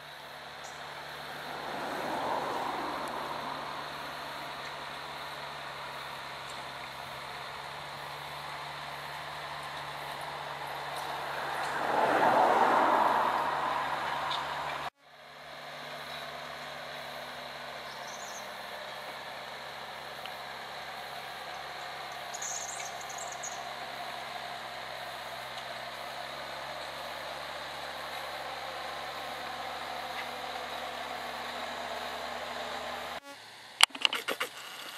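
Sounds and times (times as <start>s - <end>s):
distant tractor diesel engine: 0.0s - 34.9s
loud rushing noise: 10.7s - 14.9s
faint bird chirps: 17.8s - 18.6s, 21.5s - 23.8s.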